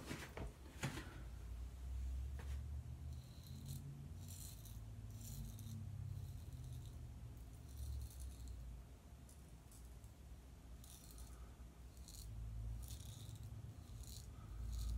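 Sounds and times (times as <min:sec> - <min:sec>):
steady low hum: 0:00.0 - 0:14.9
razor scraping stubble: 0:10.8 - 0:14.9.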